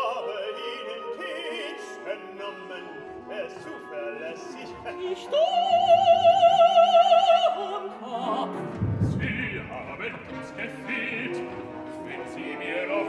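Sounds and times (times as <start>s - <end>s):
orchestra playing: 0.0s - 13.0s
woman singing opera: 4.7s - 9.4s.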